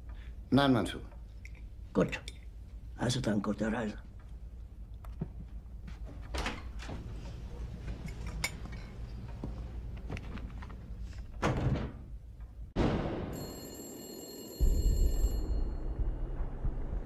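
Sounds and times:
footsteps: 5.1 - 11.3
door shutting: 6.1 - 7.3, 11.3 - 12.1.

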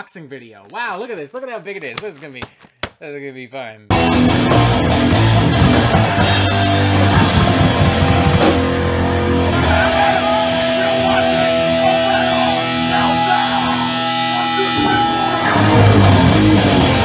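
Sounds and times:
heavy metal band playing: 3.9 - 17.0.

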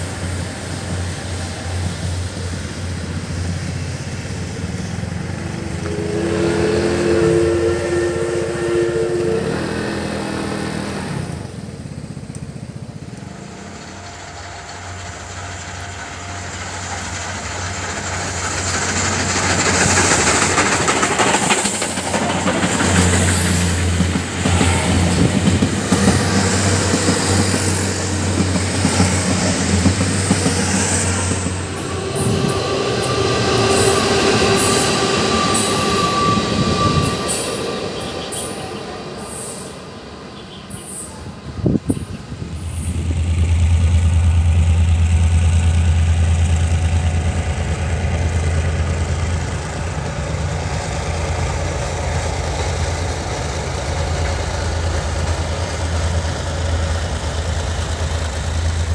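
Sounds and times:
steam train running: 0.0 - 58.9
wheel and rail noise: 0.0 - 58.9
two-note train whistle: 5.4 - 11.4, 29.4 - 41.3.

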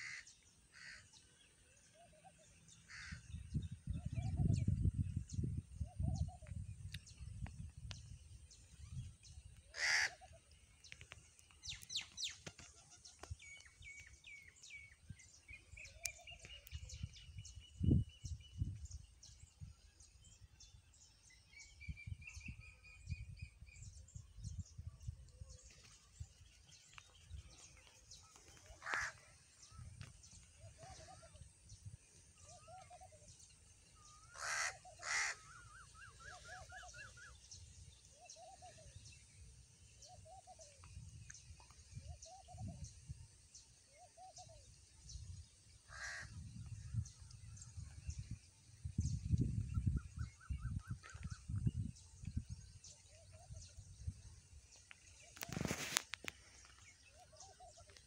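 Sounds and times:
small birds chirping and trilling: 0.0 - 58.0
crows cawing: 9.7 - 10.2, 28.8 - 29.2, 34.4 - 35.4, 45.9 - 46.3.

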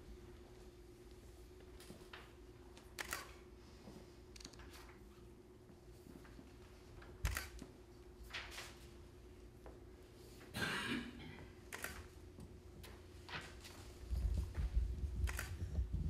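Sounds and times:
faint room hum: 0.0 - 16.0
paper rustling: 8.2 - 8.9.

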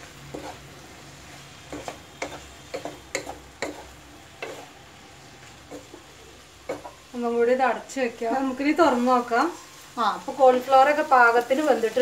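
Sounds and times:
wooden spatula tapping a pan: 1.7 - 3.8.

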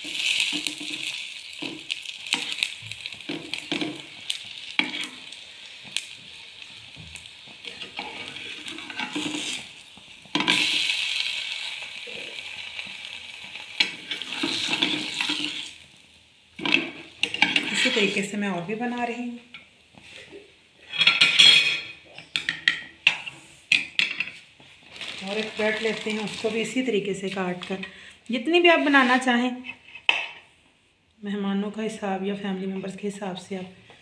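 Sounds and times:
spatula scraping a pan: 0.0 - 6.2, 7.6 - 11.0, 13.8 - 15.8, 16.6 - 18.4
bread sizzling in oil: 0.0 - 20.2, 22.9 - 27.7.

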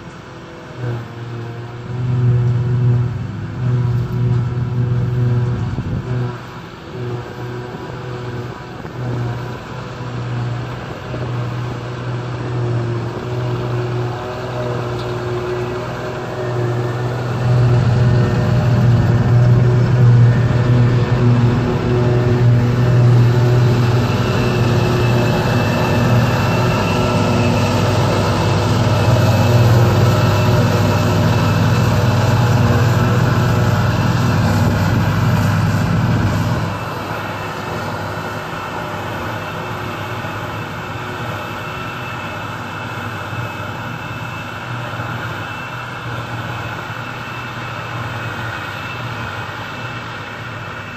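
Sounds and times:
heavy diesel engines running: 0.0 - 50.9.

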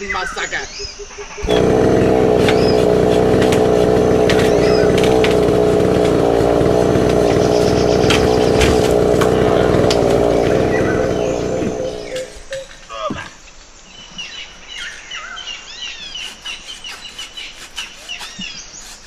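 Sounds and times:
moped engine droning: 1.1 - 12.7.

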